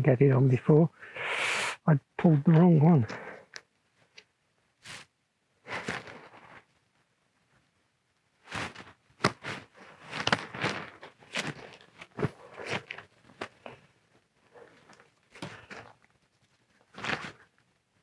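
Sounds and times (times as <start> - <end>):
tent fabric rustling and crunching: 5.7 - 6.7, 8.4 - 13.8, 16.8 - 17.6.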